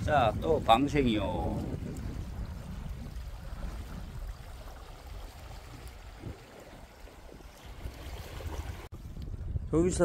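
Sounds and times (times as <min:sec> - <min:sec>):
water lapping among rocks: 0:01.6 - 0:08.9.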